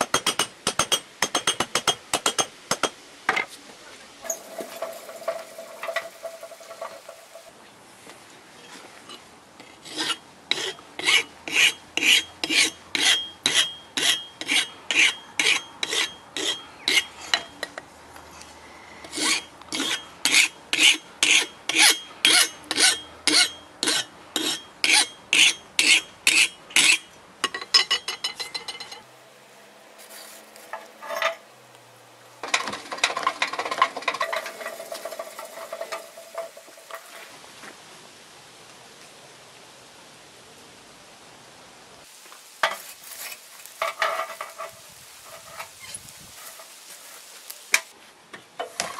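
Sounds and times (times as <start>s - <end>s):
rough clatter and hiss: 4.2s - 7.6s, 32.4s - 37.8s, 42.0s - 48.0s, 48.6s - 48.9s
file rasping on steel: 9.9s - 17.1s, 19.1s - 27.0s.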